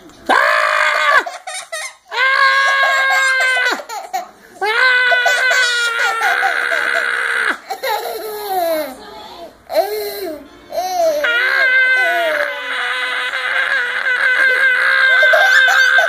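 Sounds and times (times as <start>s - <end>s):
girl laughing: 14.4s - 16.0s.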